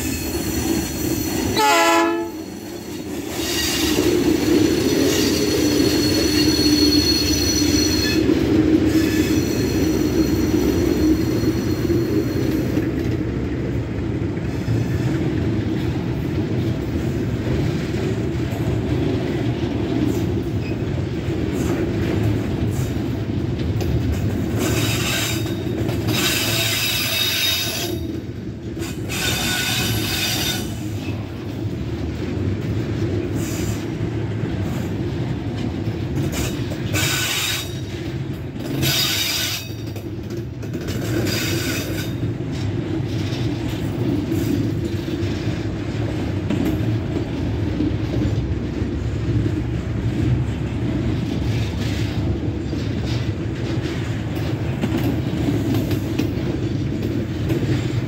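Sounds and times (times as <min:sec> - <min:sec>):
train wheels rumbling on rail: 0:00.0 - 0:58.0
high-pitched wheel squeals: 0:02.4 - 0:12.7.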